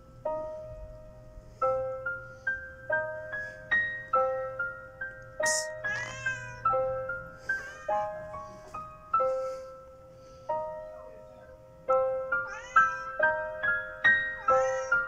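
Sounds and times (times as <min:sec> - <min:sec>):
slow piano music: 0:00.0 - 0:15.0
cat meowing: 0:05.4 - 0:06.9, 0:07.5 - 0:08.3, 0:12.3 - 0:13.6, 0:14.2 - 0:15.0.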